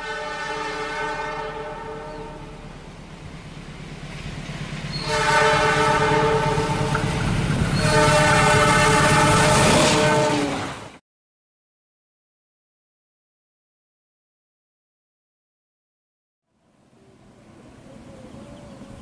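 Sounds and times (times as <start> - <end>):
locomotive horn blasts: 0.0 - 2.8, 4.9 - 10.9
passing train rumble: 0.0 - 11.0, 16.5 - 19.0.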